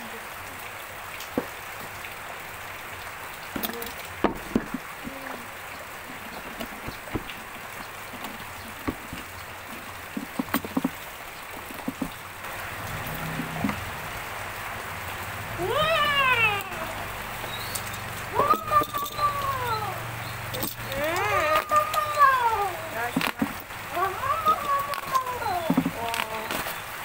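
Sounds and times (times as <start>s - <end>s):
plastic crinkling and cardboard taps: 3.6s - 4.9s, 6.4s - 12.3s, 23.1s - 23.7s, 24.4s - 26.8s.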